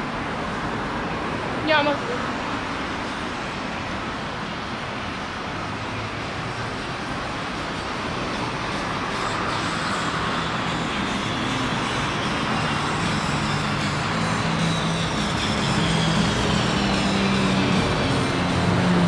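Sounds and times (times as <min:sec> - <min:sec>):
road vehicles running: 0:00.0 - 0:19.0.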